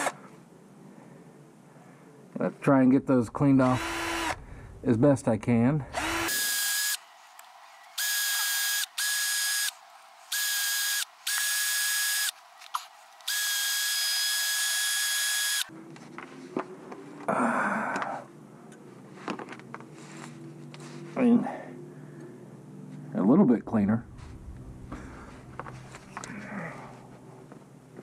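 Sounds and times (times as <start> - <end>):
rotary tool wire brush whine: 5.9 - 15.7.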